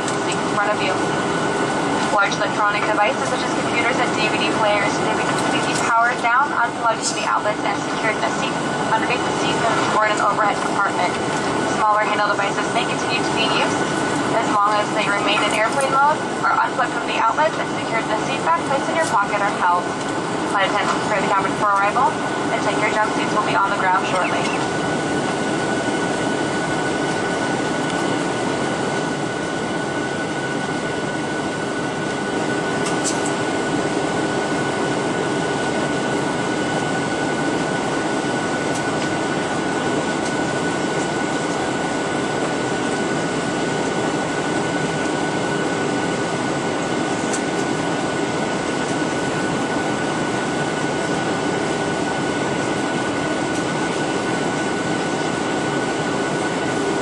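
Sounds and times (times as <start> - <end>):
airflow rush in cabin: 0.0 - 57.0
jet engines: 0.0 - 57.0
steady high whine: 0.0 - 57.0.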